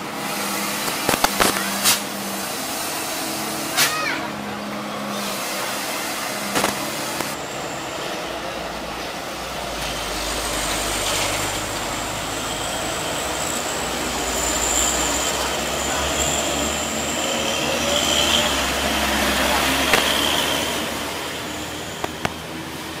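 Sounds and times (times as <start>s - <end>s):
diesel trucks rumbling: 0.0s - 23.0s
high-pitched squeal: 10.0s - 23.0s.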